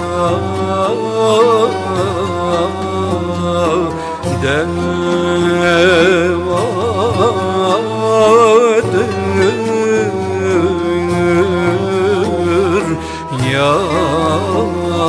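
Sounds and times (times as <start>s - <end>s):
devotional song: 0.0s - 15.0s.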